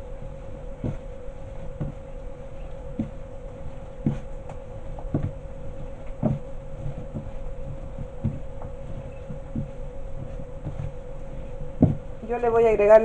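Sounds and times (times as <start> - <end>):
steady hum: 0.0 - 13.0
dough thumping on countertop: 11.8 - 12.1.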